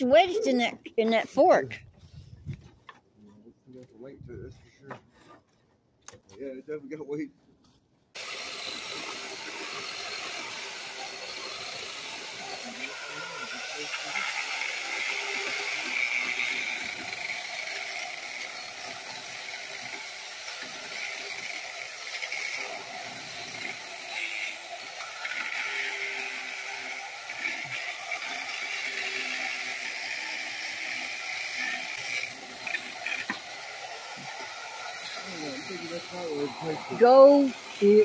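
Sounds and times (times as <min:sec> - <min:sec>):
chainsaw cutting wood: 0:08.2 - 0:38.0.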